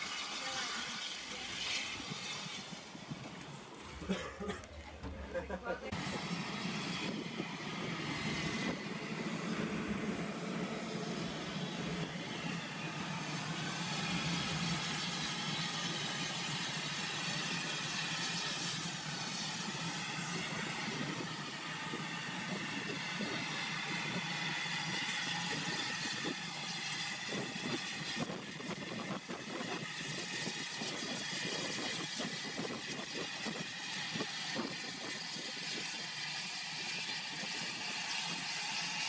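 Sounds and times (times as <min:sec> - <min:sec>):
steam hissing: 0:00.0 - 0:03.2, 0:05.3 - 0:39.0
low hum: 0:00.0 - 0:39.0.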